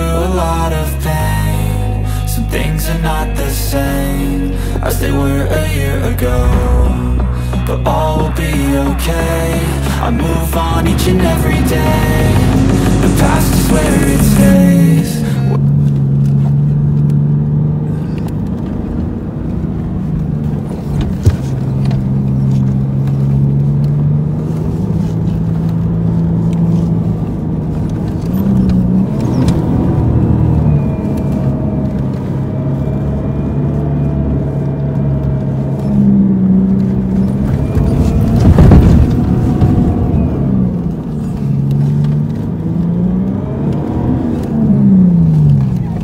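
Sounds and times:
off-road vehicle engine: 0:00.0 - 0:46.0
loud burst of noise: 0:06.2 - 0:15.6.

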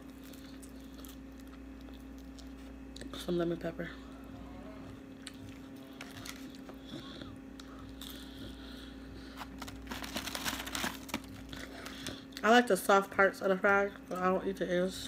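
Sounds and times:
person chewing food: 0:00.0 - 0:03.1, 0:04.8 - 0:10.0.

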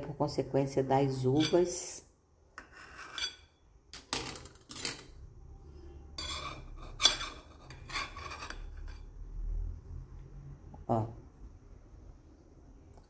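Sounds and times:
knife scraping plastic plate: 0:06.2 - 0:09.0.

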